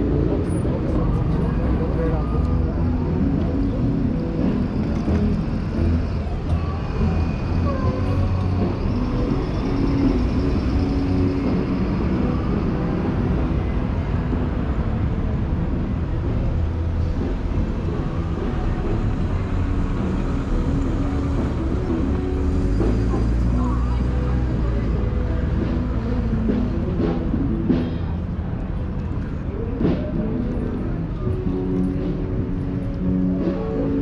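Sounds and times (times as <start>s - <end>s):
car and bus engines passing: 0.0s - 34.0s.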